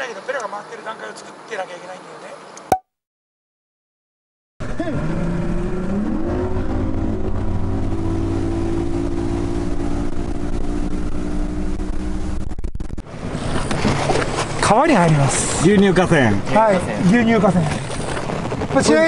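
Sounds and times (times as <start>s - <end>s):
outboard motor running at speed: 4.8s - 15.6s
wind and hull noise: 5.7s - 19.0s.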